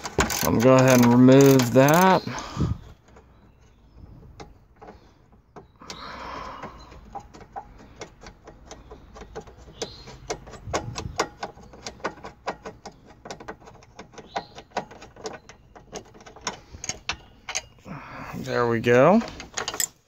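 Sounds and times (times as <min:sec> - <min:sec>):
hand ratchet clicking: 0:00.0 - 0:02.2.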